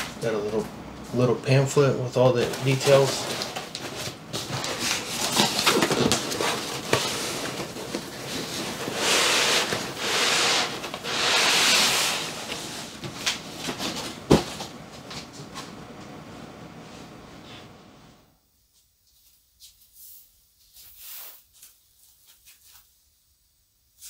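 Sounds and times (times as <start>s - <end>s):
cardboard box rustling: 2.4s - 14.7s
foam scraping against cardboard: 4.6s - 12.8s.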